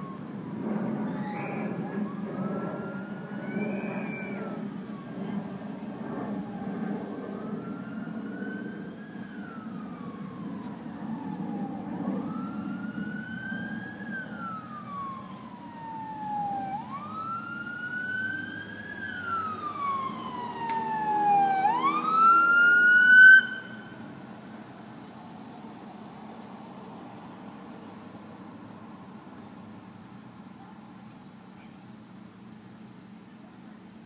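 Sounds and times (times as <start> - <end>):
police siren wailing: 0.0 - 24.2.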